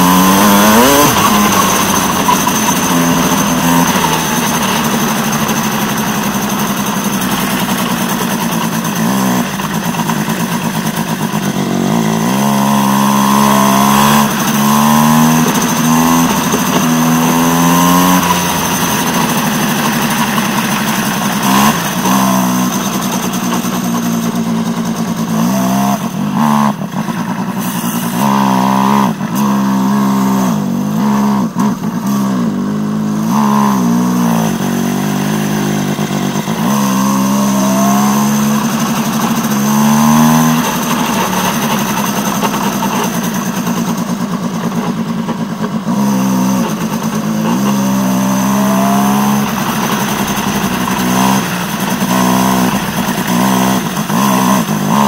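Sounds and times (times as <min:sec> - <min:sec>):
kart engine at full throttle: 0:00.0 - 0:55.0.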